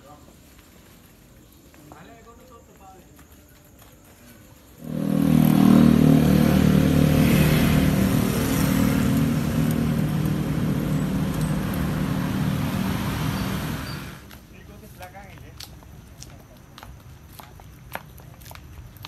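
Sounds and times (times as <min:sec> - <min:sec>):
cars passing: 0:04.8 - 0:14.4
motor scooters passing: 0:04.8 - 0:14.4.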